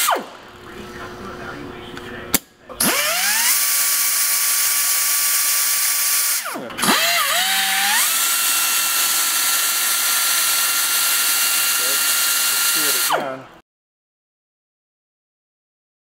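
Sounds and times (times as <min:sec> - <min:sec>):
pneumatic cutoff tool whining: 0:00.0 - 0:01.4, 0:02.3 - 0:13.4
exhaust air hissing: 0:00.0 - 0:04.4.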